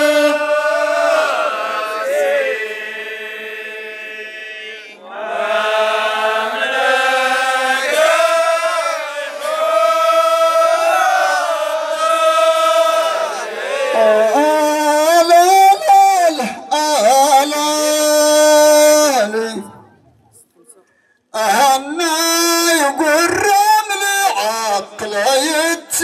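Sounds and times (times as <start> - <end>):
male chorus chanting: 0.0 - 19.4.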